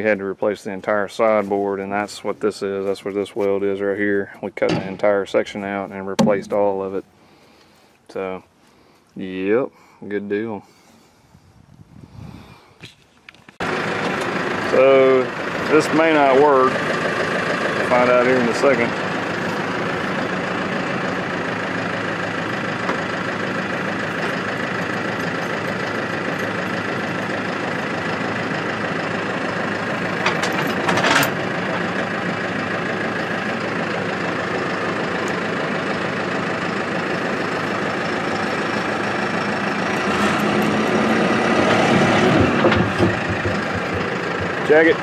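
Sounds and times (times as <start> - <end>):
tractor diesel engine running: 0.0 - 11.3, 13.6 - 45.0
sharp metal clanks: 4.6 - 5.2, 6.2 - 6.7.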